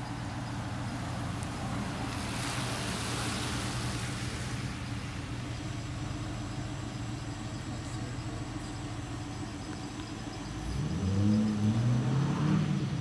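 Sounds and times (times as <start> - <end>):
vehicle passing with tyre hiss: 0.0 - 6.8, 10.6 - 13.0.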